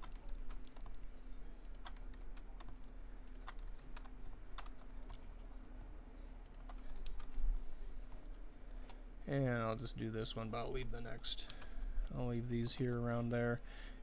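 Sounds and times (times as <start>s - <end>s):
keyboard keys clicking: 0.0s - 1.0s, 1.6s - 5.2s
low steady hum: 0.0s - 14.0s.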